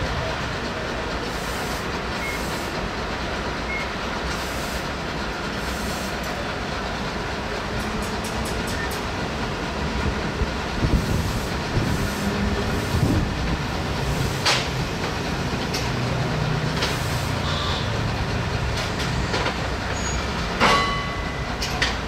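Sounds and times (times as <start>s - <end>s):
low rumble of rail vehicle: 0.0s - 22.0s
sharp metallic clanks: 20.5s - 22.0s.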